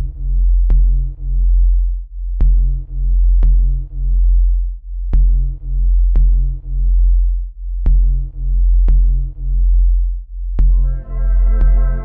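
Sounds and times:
deep synth bass: 10.6 - 12.0.

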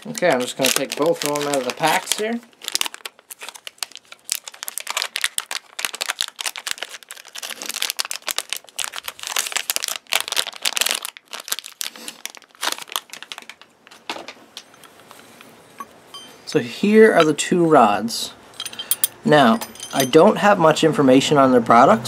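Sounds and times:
plastic packaging crinkling: 0.0 - 15.5.

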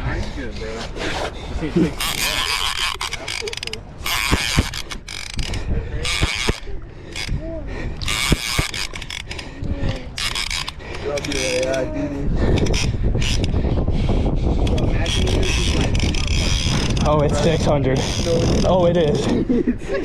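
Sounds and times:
fishing reel clicker ratcheting: 2.0 - 7.4, 8.0 - 11.8, 12.6 - 13.5.

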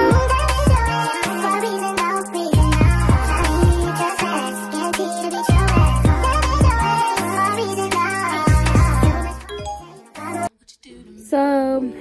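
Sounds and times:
background music with steady beat: 0.0 - 10.5.

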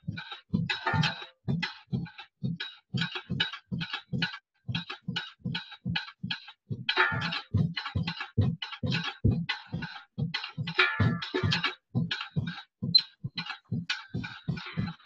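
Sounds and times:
drum kit playing: 0.0 - 1.7, 6.7 - 15.0.

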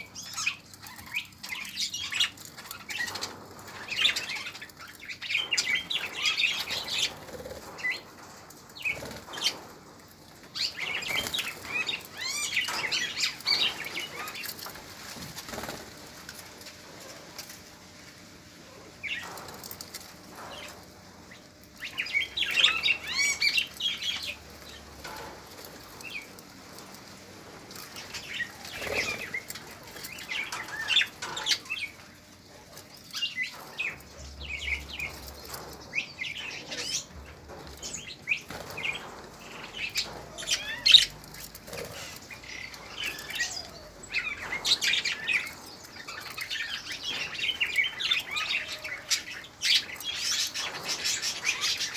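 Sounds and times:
budgerigars chattering and chirping: 10.6 - 14.6, 21.8 - 25.3, 27.9 - 51.9.

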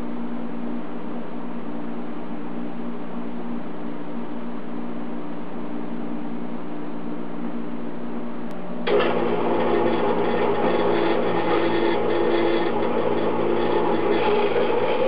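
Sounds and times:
low shop hum: 0.0 - 15.0
bandsaw running: 8.8 - 15.0.

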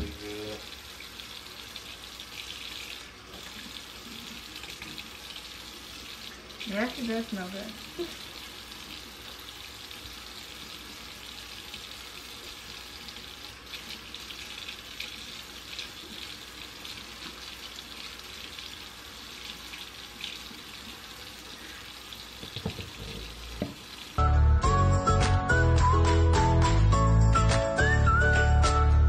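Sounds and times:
faucet water splashing in sink: 0.0 - 24.2
loud music: 24.2 - 29.0.

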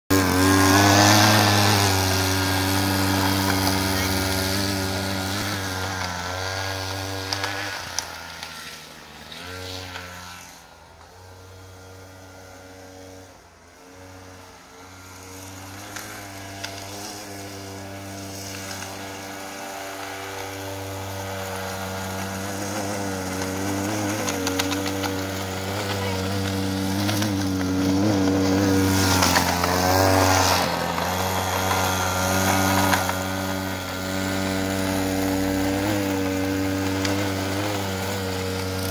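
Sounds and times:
snow scooter engine running: 0.0 - 38.9.

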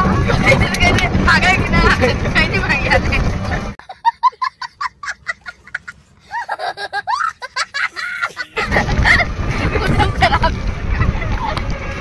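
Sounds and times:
small child laughing: 3.8 - 11.6.

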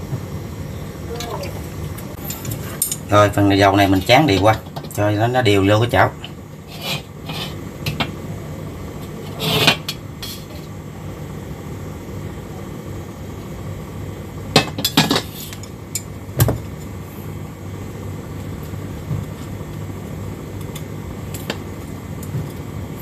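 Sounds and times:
steady low hum: 0.0 - 23.0
wok scraping on stovetop: 6.6 - 8.0, 9.0 - 10.8.

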